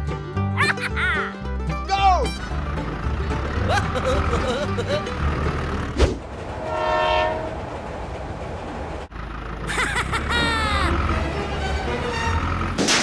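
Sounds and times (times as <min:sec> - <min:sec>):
train horn blasts: 0:06.4 - 0:07.8.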